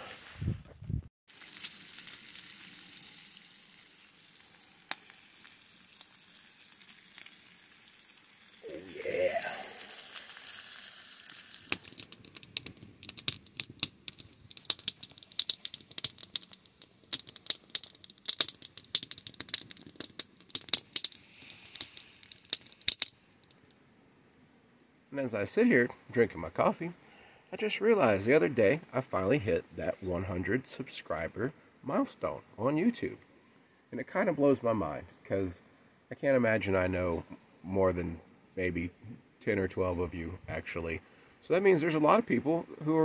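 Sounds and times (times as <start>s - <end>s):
bacon sizzling: 1.3s - 23.1s
wood fire crackling: 1.3s - 23.8s.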